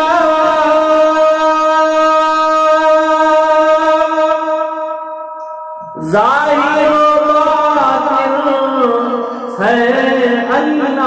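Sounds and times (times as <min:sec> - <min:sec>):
man singing long note: 0:00.0 - 0:11.0.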